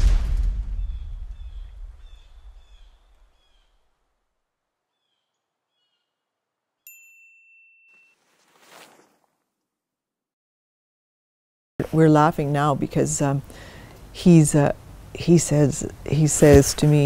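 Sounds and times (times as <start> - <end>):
low rumble: 0.0 - 3.2
bird-like chirps: 0.8 - 3.8, 4.9 - 6.2
bright bell-like chime: 6.9 - 8.2.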